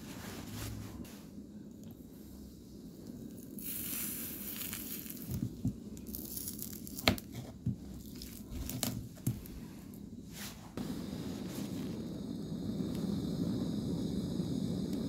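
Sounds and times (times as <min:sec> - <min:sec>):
wax cracking and snapping: 0:03.3 - 0:09.7
hot knife hissing on wax: 0:03.4 - 0:06.9, 0:10.8 - 0:15.0.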